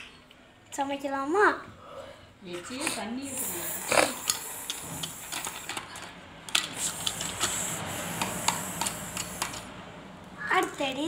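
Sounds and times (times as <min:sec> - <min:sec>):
plastic toy pieces clicking: 0:04.2 - 0:09.7.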